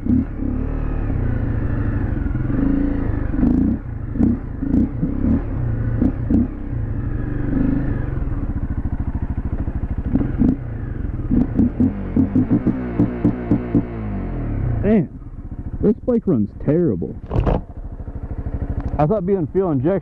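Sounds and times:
motorcycle engine surging: 0.0s - 20.0s.

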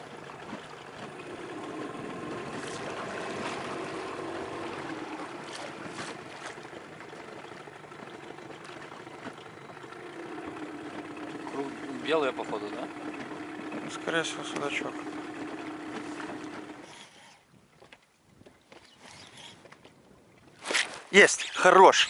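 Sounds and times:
low hum: 0.0s - 17.0s
water lapping at boat hull: 0.0s - 22.0s.

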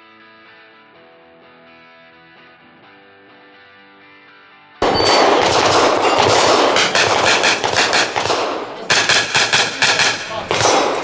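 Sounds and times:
rapid gunfire: 4.8s - 11.0s.

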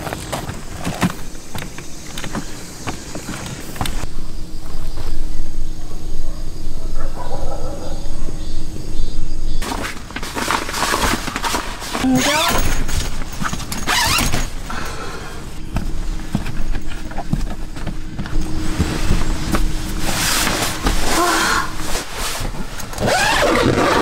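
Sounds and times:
tent fabric rustling: 9.6s - 14.6s, 15.5s - 24.0s
zipper being drawn: 20.2s - 24.0s.

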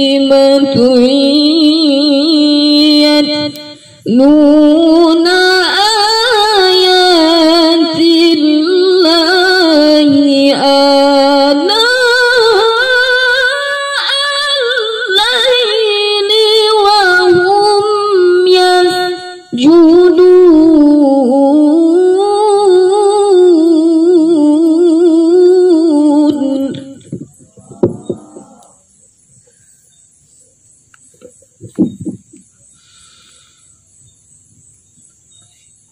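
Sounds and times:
woman reciting melodically: 0.0s - 28.2s
woman breathing: 32.6s - 34.0s.

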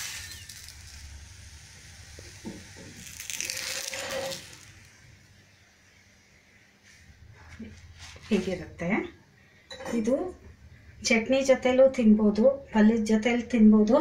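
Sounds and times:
spatula scraping hot griddle: 0.0s - 0.9s, 3.0s - 4.9s.

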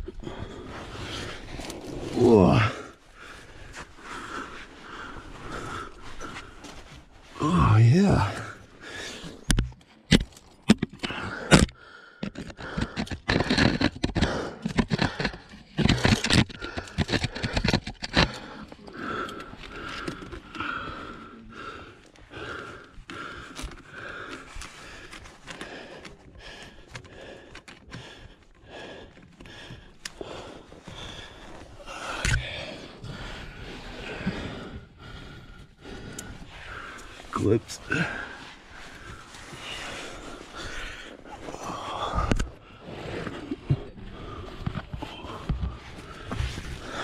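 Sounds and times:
hard breathing: 0.0s - 47.0s
gear scraping against rock: 0.4s - 6.7s, 7.4s - 20.7s.

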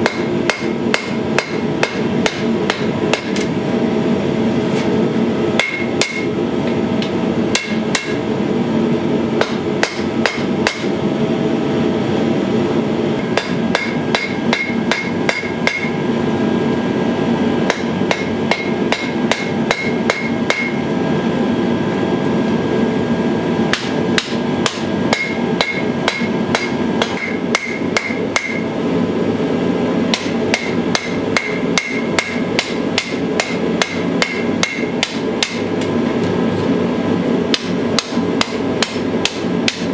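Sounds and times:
hammer striking steel on anvil: 0.0s - 3.5s, 5.6s - 8.2s, 9.4s - 11.0s, 13.2s - 16.0s, 17.6s - 20.8s, 23.7s - 28.7s, 30.1s - 35.9s, 37.5s - 39.9s
anvil ringing: 13.4s - 16.0s, 17.7s - 20.8s, 23.8s - 28.6s.

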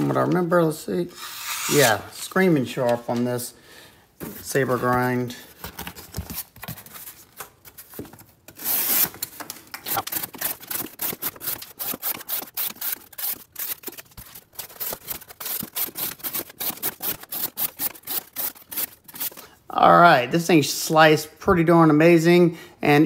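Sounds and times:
knife slicing cardboard: 9.9s - 19.4s.

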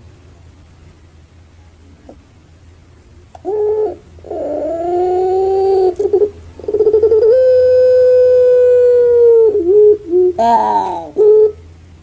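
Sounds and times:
dove cooing: 3.4s - 11.8s.

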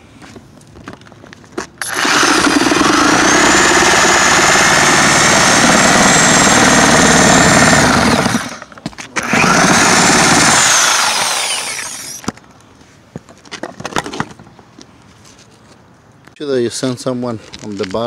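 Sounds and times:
reciprocating saw cutting wood: 1.8s - 12.2s.

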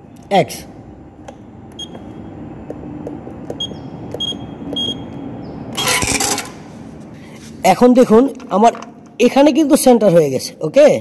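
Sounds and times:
short high key beeps: 3.6s - 5.1s.

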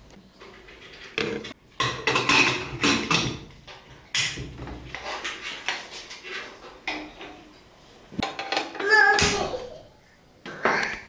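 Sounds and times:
metal lid clinking and scraping: 0.4s - 7.5s.

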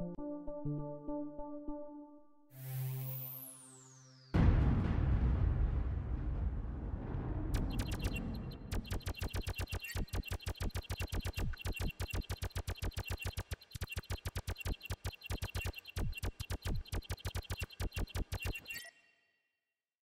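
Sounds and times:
electronic soundtrack music: 0.0s - 4.5s
low rumble: 4.4s - 9.1s
fast even clicks: 7.8s - 18.8s.

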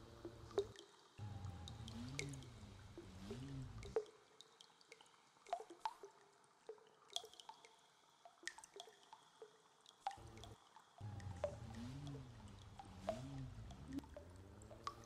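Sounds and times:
water drops plinking: 0.1s - 4.0s, 10.1s - 15.0s.

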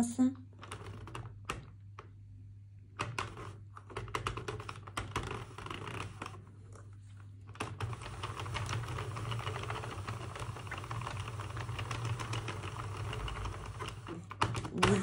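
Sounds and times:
knitting machine clicking: 7.5s - 15.0s.

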